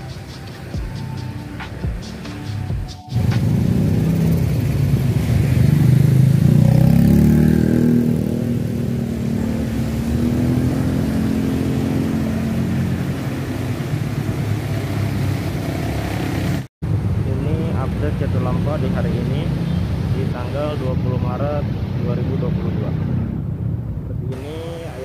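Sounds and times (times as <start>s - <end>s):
vehicle engine running: 3.1s - 18.8s.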